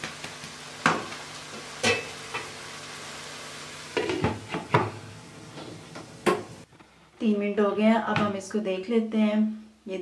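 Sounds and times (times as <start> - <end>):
curry sizzling in a wok: 0.0 - 6.7.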